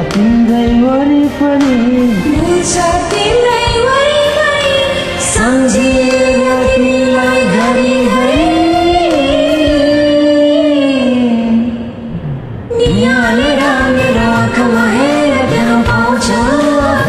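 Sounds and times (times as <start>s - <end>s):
karaoke backing track: 0.0s - 17.0s
woman singing: 1.7s - 11.9s, 12.7s - 17.0s.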